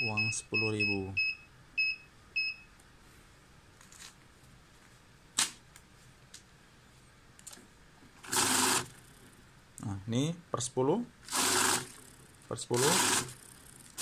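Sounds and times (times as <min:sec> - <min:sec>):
money counter beeping: 0:11.3 - 0:12.0, 0:12.7 - 0:13.4.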